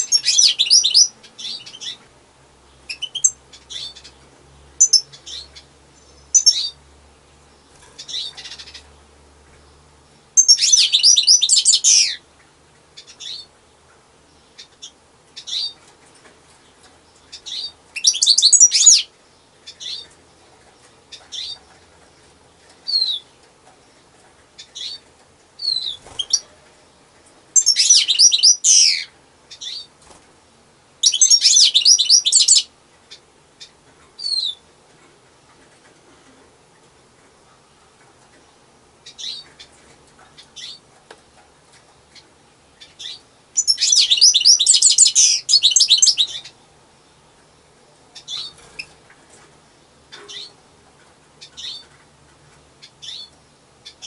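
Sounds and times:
goldfinch twittering song: 0.0s - 2.0s, 2.9s - 4.2s, 4.8s - 6.8s, 10.4s - 12.2s, 14.4s - 15.8s, 17.1s - 20.1s, 27.6s - 29.9s, 31.0s - 32.7s, 39.0s - 39.7s, 42.8s - 46.6s, 51.4s - 51.9s, 52.8s - 54.0s.

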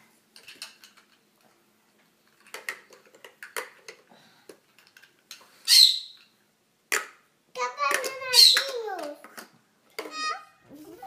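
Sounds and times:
plastic blocks clattering: 0.3s - 1.3s, 2.2s - 5.4s
plastic blocks clicking together: 0.4s - 1.2s, 2.3s - 5.4s, 7.8s - 10.2s.

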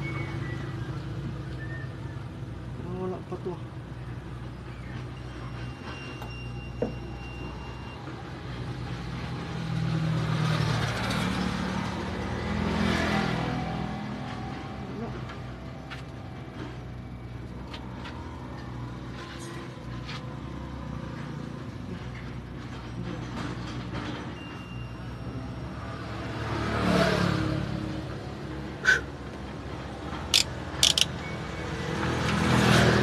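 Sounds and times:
vehicle engine humming: 28.0s - 33.0s.

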